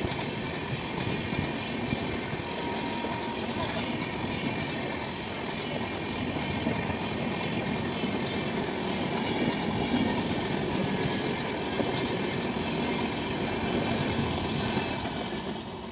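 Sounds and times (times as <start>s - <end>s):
wheels clicking over track: 0.0s - 15.8s
train wheels rumbling on rails: 0.0s - 15.9s.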